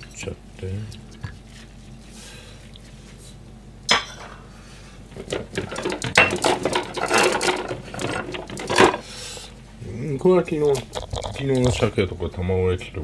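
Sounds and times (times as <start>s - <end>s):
dishes clattering on counter: 3.9s - 4.5s, 5.2s - 9.0s.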